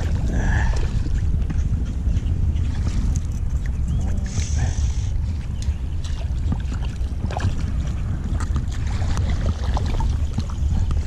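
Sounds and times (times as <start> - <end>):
small water splashes: 5.3 - 11.0.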